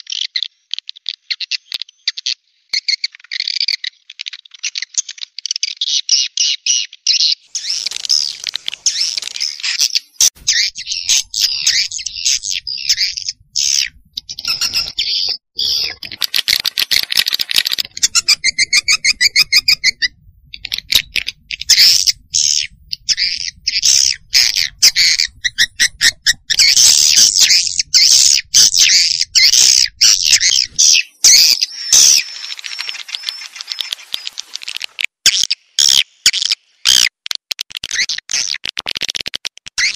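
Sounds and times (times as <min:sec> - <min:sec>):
swiftlets twittering and chirping: 0:07.5 - 0:35.1.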